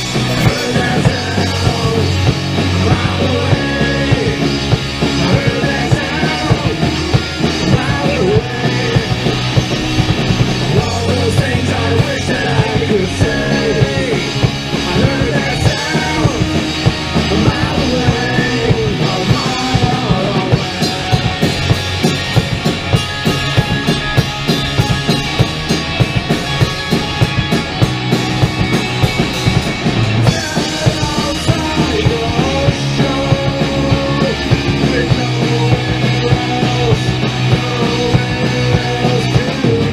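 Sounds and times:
bass guitar: 0.0s - 39.9s
electric guitar: 0.0s - 39.9s
steady drum beat: 0.0s - 39.9s.

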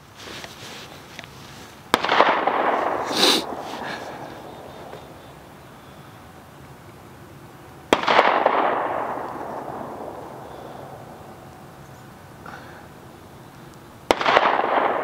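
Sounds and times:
rifle shot echoing: 1.9s - 5.5s, 7.9s - 11.5s, 14.1s - 15.0s.

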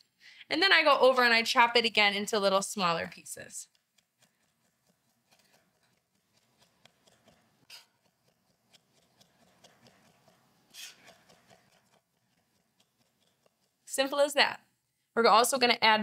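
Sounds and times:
knife chopping on wooden board: 3.9s - 13.8s.

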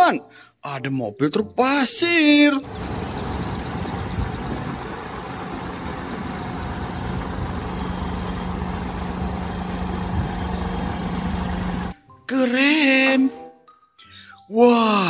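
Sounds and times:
diesel truck engine idling: 2.6s - 12.0s.

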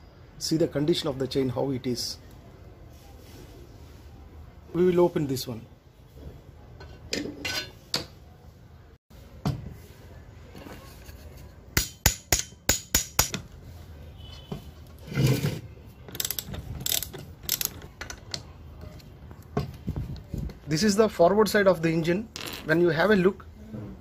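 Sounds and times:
ratchet wrench clicking: 16.1s - 17.9s.

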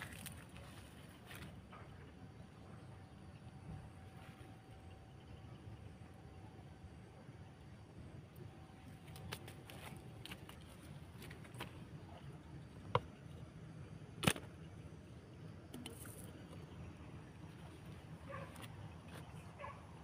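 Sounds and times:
bamboo pole clicks and knocks: 14.2s - 14.6s.

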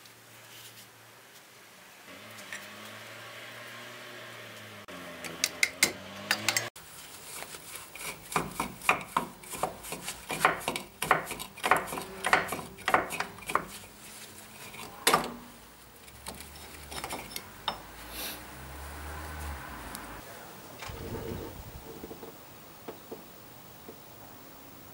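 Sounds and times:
hand tools knocking on metal: 8.4s - 13.8s.

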